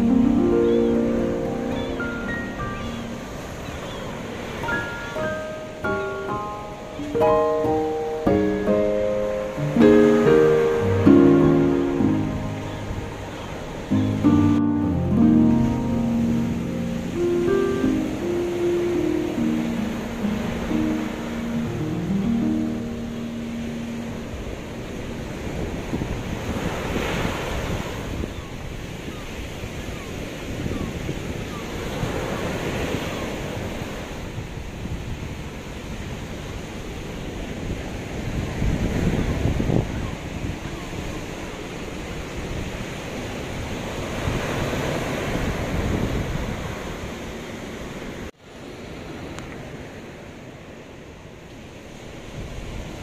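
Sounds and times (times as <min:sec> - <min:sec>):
waves breaking on beach: 0:00.0 - 0:53.0
wind buffeting microphone: 0:24.2 - 0:47.6.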